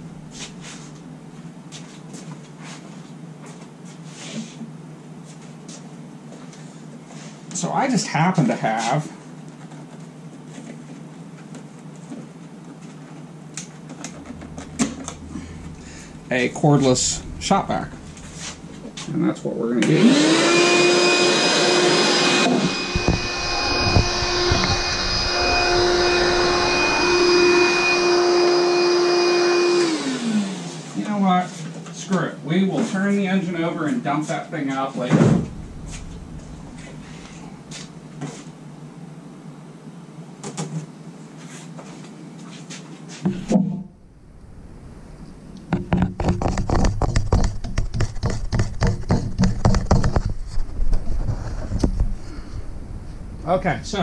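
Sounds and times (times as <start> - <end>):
shop vac motor whine: 13.5 - 31.2, 35.2 - 39.0.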